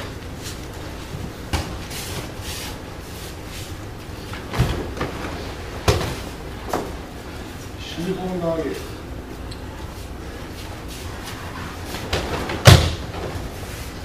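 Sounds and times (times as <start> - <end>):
bodies thudding onto mat: 4.4 - 7.0, 11.9 - 13.4.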